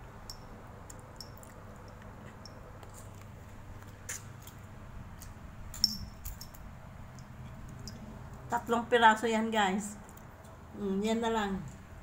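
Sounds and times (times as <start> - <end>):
low steady hum: 0.0 - 12.0
sharp clink with high ring: 0.2 - 0.5, 5.8 - 8.0.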